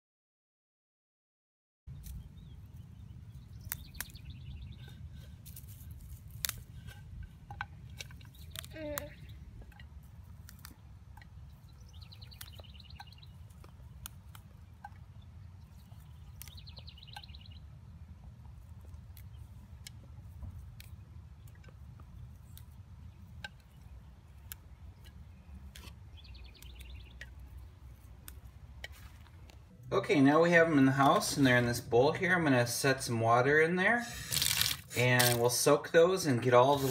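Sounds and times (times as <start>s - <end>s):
songbird trilling: 1.9s - 5.0s, 8.2s - 10.0s, 11.1s - 13.7s, 14.5s - 17.8s, 22.4s - 27.8s
low outdoor rumble: 1.9s - 36.9s
fern shoots snapping: 3.6s - 4.2s, 6.2s - 6.6s, 34.2s - 35.5s.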